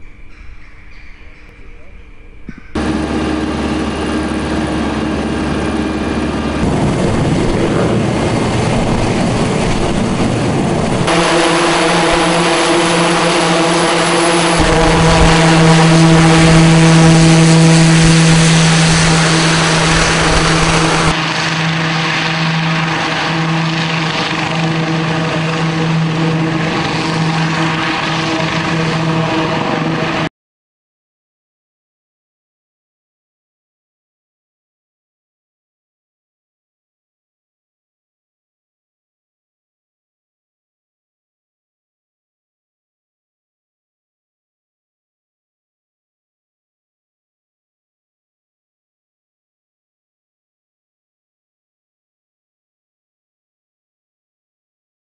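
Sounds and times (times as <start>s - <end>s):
buzzing rotor blades: 1.9s - 30.3s
helicopter engine whine: 2.7s - 30.3s.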